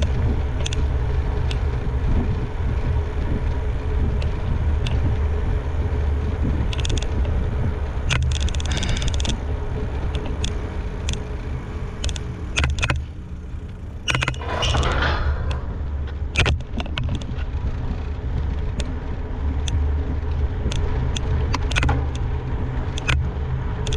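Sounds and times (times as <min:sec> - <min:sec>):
rumble of wind and tyres: 0:00.0 - 0:23.9
bike rattling clicks: 0:06.6 - 0:23.9.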